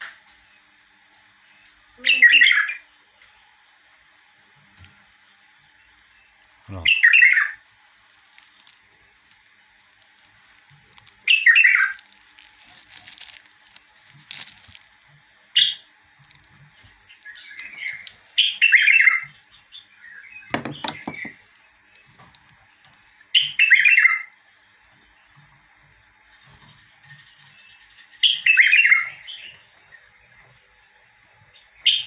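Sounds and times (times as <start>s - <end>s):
bulbul singing warbled phrases: 2.0s - 2.9s, 6.6s - 7.6s, 11.2s - 12.0s
plastic crackling: 7.6s - 19.7s, 20.4s - 23.6s.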